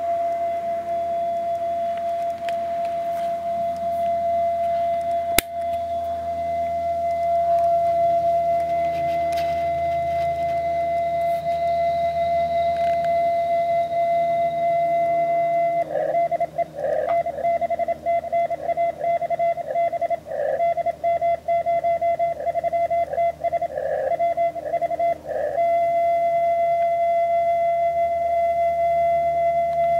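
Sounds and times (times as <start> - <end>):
steady radio tone: 0.0 - 29.9
morse code beeps: 15.5 - 26.1.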